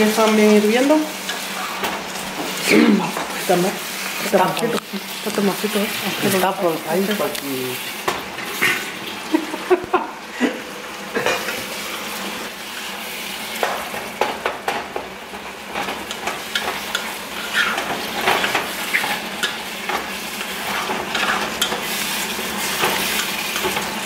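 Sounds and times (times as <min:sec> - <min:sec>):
vegetables sizzling in a skillet: 0:00.0 - 0:24.0
wooden spatula scraping a pan: 0:16.1 - 0:24.0.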